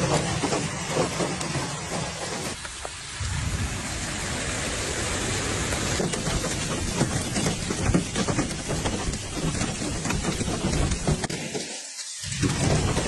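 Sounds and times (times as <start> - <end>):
heavy rain hissing: 0.0 - 13.0
hailstones striking ground: 5.7 - 13.0.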